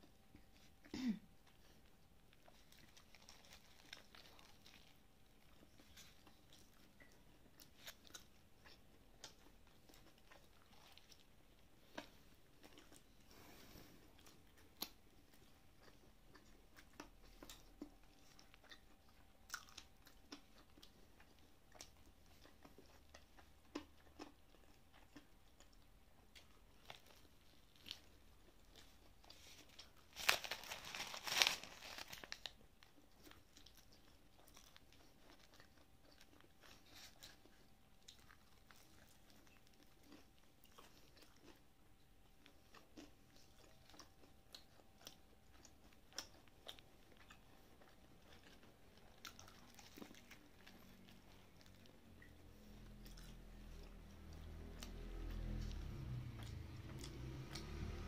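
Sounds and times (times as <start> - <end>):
crunching fried chicken: 1.8 - 13.1, 14.2 - 58.0
paper bag rustling: 30.1 - 32.4.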